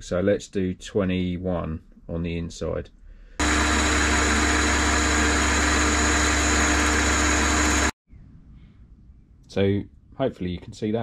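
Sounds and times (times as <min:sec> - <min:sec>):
metal lathe motor hum and whine: 0:03.4 - 0:07.9.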